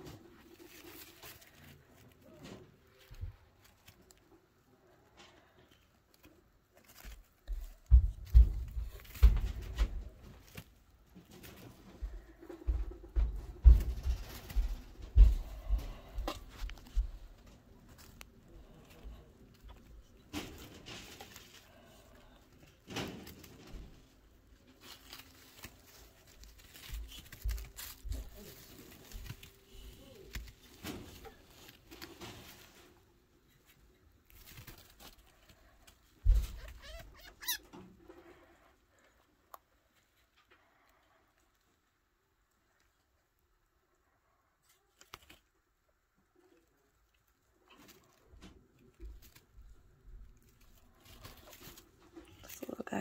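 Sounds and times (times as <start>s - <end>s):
animals moving in wood shavings: 0.0s - 53.0s
dull low thumps and rustles: 7.0s - 10.6s, 11.2s - 19.0s.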